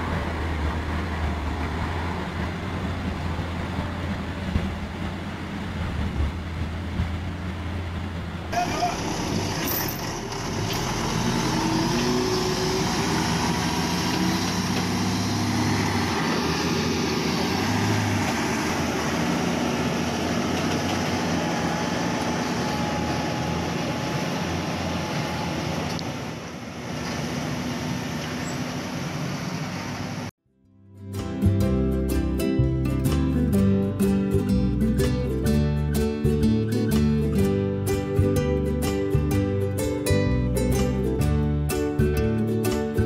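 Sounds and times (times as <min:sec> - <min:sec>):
diesel truck engine under load: 0:00.0 - 0:30.3.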